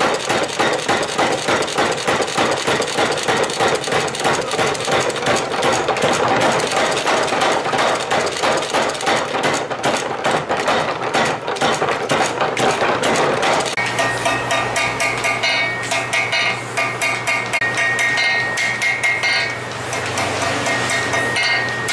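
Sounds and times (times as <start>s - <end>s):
hammer striking steel on anvil: 13.1s - 21.9s.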